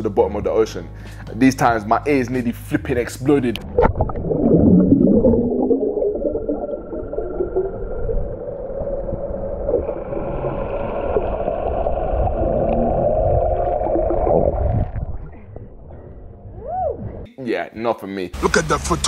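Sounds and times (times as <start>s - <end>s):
muffled underwater rushing and bubbling: 3.6s - 16.6s.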